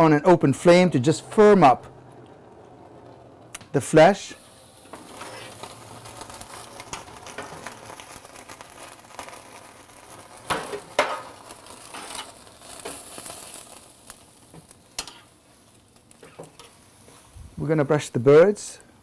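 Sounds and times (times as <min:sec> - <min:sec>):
skin sizzling and crackling: 0:00.0 - 0:17.9
metal tongs clacking: 0:15.0 - 0:15.3.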